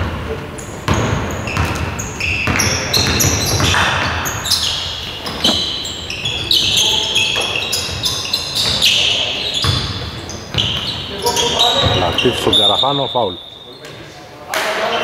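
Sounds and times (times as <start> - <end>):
sneaker squeaks: 0.6 - 14.2
basketball bouncing on floor: 0.9 - 4.1, 11.8 - 12.1.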